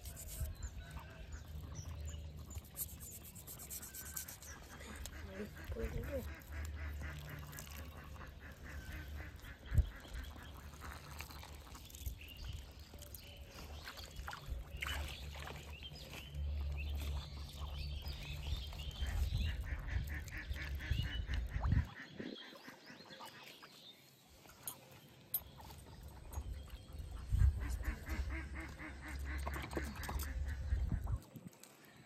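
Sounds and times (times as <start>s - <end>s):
ducks quacking: 4.1s - 11.2s, 18.8s - 23.5s, 26.9s - 31.2s.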